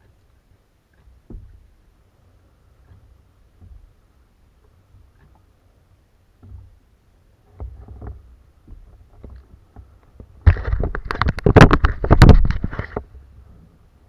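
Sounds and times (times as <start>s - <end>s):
camera handling knocks and rubbing: 7.6s - 13.1s.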